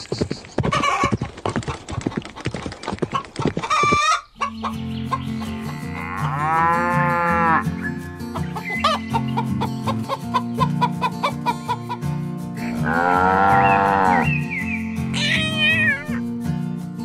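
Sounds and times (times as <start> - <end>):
background music low notes: 4.4 - 17.0
cow mooing: 5.8 - 7.6, 12.7 - 14.3.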